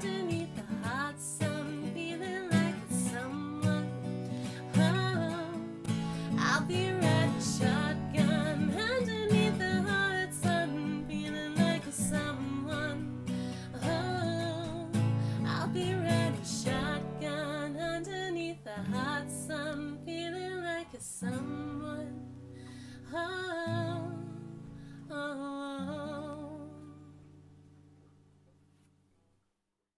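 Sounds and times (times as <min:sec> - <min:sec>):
acoustic guitar strumming: 0:00.0 - 0:22.8
woman singing: 0:00.0 - 0:27.2.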